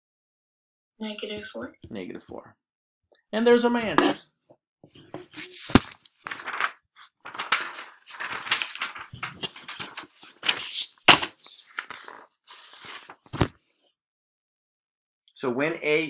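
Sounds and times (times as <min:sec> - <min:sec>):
rustling and crinkling: 0:04.9 - 0:13.6.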